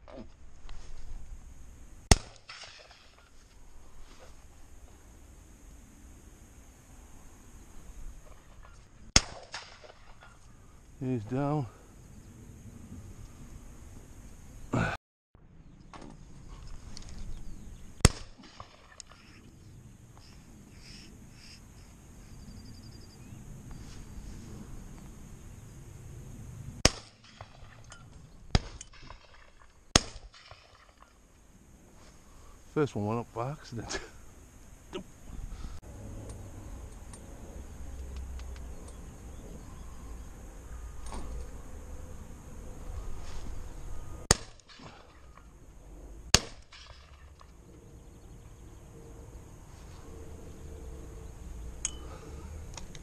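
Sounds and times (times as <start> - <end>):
shotgun shot: 2.1 - 3.2, 9.2 - 10.1, 18.0 - 19.0, 26.8 - 27.8, 29.9 - 30.9, 44.3 - 45.1.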